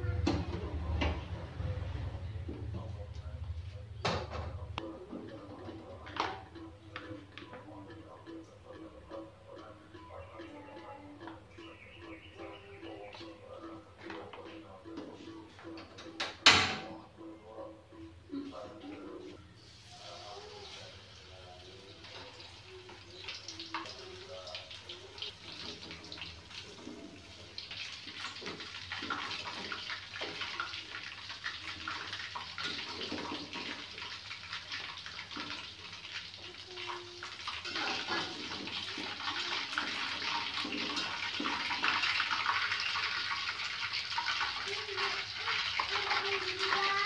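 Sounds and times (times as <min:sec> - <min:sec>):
chicken sizzling in hot oil: 0:19.6 - 0:47.0.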